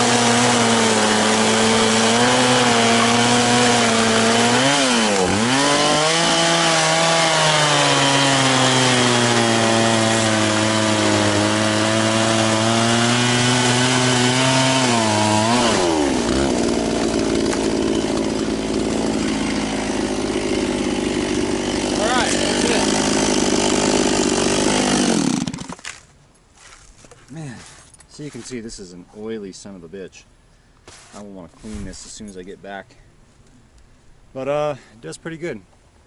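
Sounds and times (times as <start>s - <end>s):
chainsaw cutting log: 0.0s - 26.1s.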